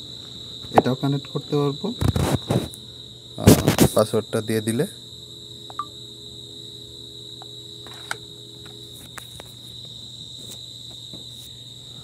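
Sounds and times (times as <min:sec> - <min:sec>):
crickets trilling: 0:00.0 - 0:12.0
low steady hum: 0:04.6 - 0:10.3.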